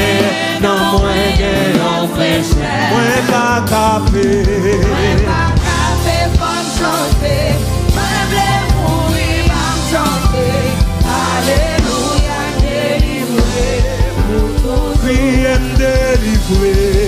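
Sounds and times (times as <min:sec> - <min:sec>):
backing singers: 0:00.0 - 0:17.0
band with bass and drums: 0:00.0 - 0:17.0
man singing into a microphone: 0:02.5 - 0:05.6, 0:13.3 - 0:17.0.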